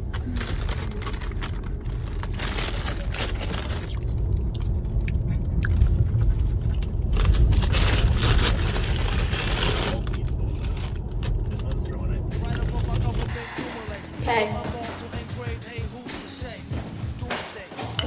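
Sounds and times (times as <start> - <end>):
paper bag and snack packets rustling: 0.0 - 4.3, 5.9 - 13.3
low rumble of car: 0.0 - 14.2.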